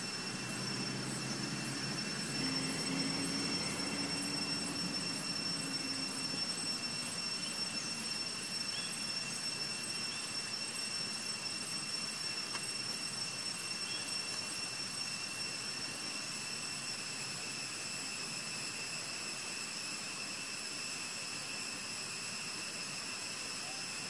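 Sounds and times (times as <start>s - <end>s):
low engine hum: 0.0s - 6.6s
high-pitched insect drone: 0.0s - 24.0s.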